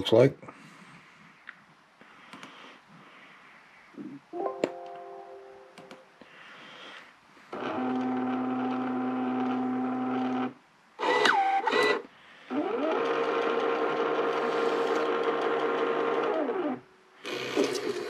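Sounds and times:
label printer feed motor: 0:07.5 - 0:18.0.

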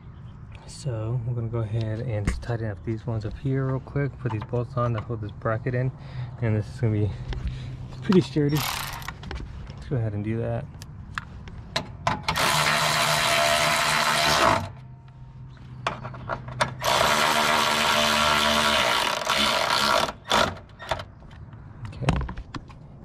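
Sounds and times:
cordless power tool spinning: 0:08.6 - 0:09.1, 0:12.3 - 0:14.8, 0:16.8 - 0:20.7.

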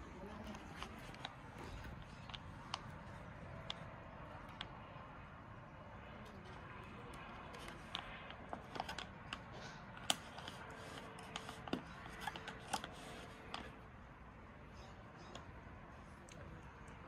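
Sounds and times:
small crackles and clicks: 0:06.0 - 0:13.8.

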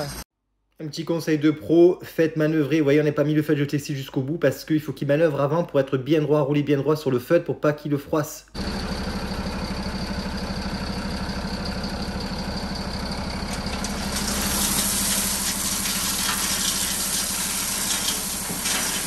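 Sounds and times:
diesel truck engine running: 0:08.6 - 0:18.6.

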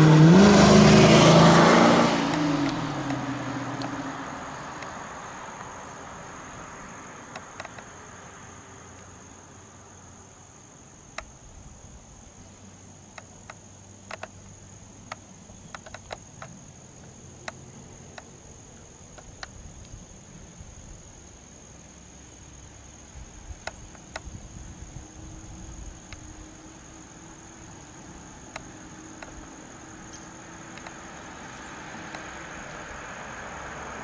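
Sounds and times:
car engine: 0:00.0 - 0:09.3, 0:25.4 - 0:34.0
insect drone: 0:00.0 - 0:34.0
sharp clicks: 0:07.3 - 0:07.9, 0:13.1 - 0:18.3, 0:30.1 - 0:31.0.

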